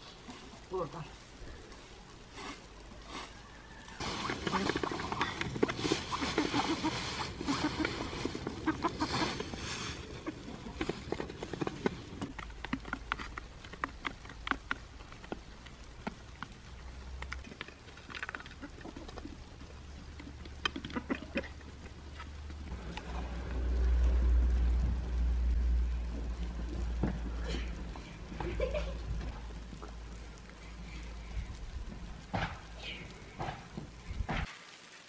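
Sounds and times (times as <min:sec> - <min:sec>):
chickens beak tapping: 0:04.2 - 0:24.1
low rumble: 0:22.4 - 0:34.5.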